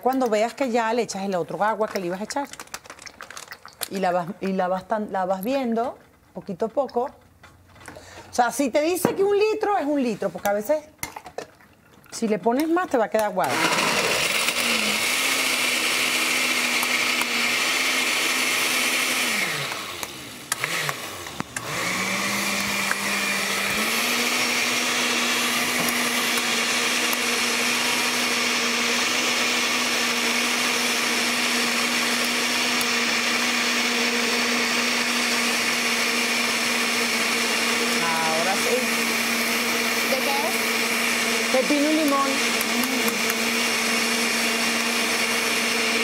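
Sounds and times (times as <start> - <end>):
kitchen appliance motor whine: 13.4 - 46.0.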